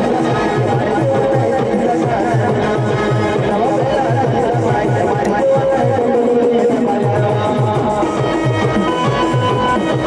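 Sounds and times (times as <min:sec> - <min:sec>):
keyboard melody: 0:00.0 - 0:10.0.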